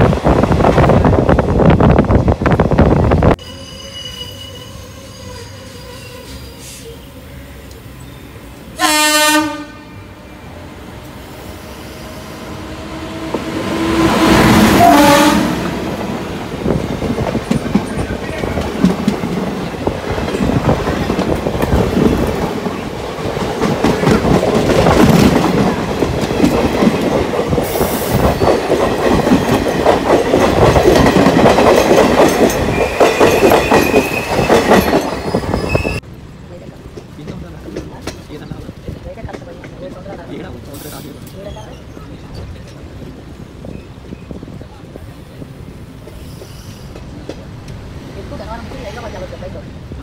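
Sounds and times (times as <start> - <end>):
train horn: 8.8 - 10.2, 13.7 - 15.7
train wheels clattering over rail joints: 16.6 - 35.8.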